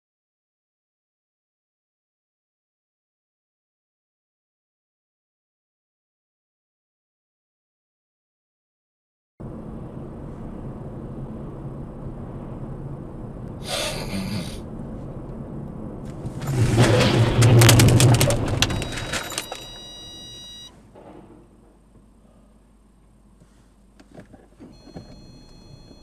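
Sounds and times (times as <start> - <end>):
car engine and tyre noise: 9.4 - 26.0
vehicle crash metal crunching: 16.0 - 21.9
debris clattering: 16.2 - 19.9
steady high tones ringing: 18.6 - 20.8, 24.8 - 26.0.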